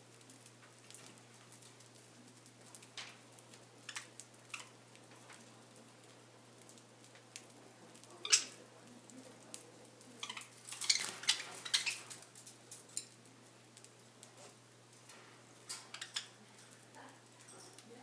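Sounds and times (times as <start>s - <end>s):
birds pecking seed in plastic dishes: 0.0s - 18.0s.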